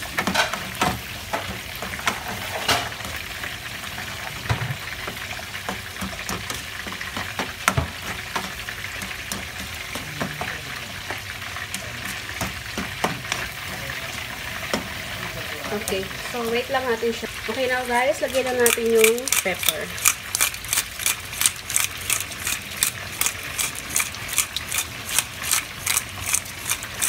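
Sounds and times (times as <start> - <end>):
spatula scraping and knocking pan: 0.0 - 3.2, 3.9 - 13.8
food sizzling in a pan: 0.0 - 27.0.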